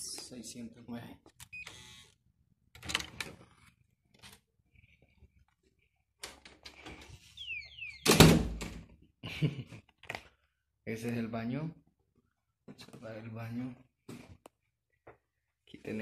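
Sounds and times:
door squeak: 0:01.4 - 0:02.1, 0:06.9 - 0:08.7
door thumping open: 0:08.0 - 0:08.9.

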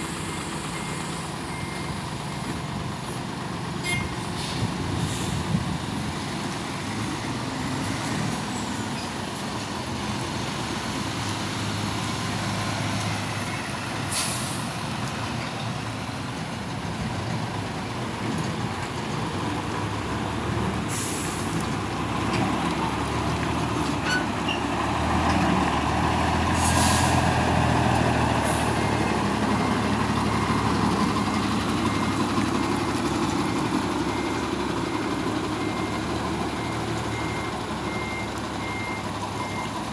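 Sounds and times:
reversing beeper: 0:00.0 - 0:02.5
heavy truck engines running: 0:00.0 - 0:39.9
air brake hisses: 0:14.1 - 0:14.7, 0:20.9 - 0:21.6, 0:26.5 - 0:27.2.

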